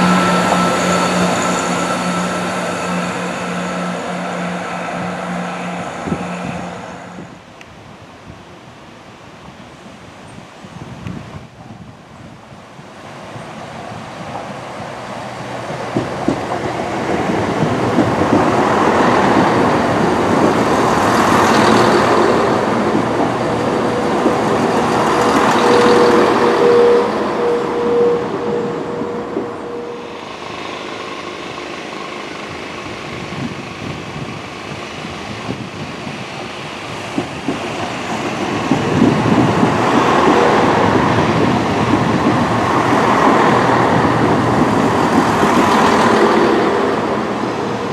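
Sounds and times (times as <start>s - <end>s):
high wheel squeal: 0.0s - 7.2s, 23.8s - 32.4s
diesel train pulling away: 0.0s - 7.6s, 12.9s - 47.9s
diesel train passing: 0.0s - 9.0s, 11.4s - 47.9s.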